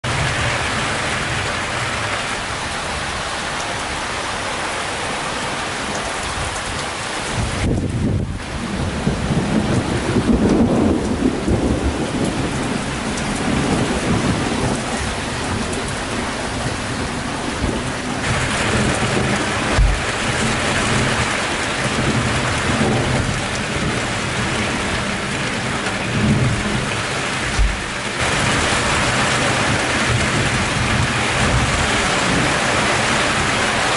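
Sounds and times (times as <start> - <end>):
steady rain falling: 0.0 - 33.9
thunder rumbling: 6.2 - 33.9
short low thumps: 19.7 - 20.1, 27.5 - 28.0.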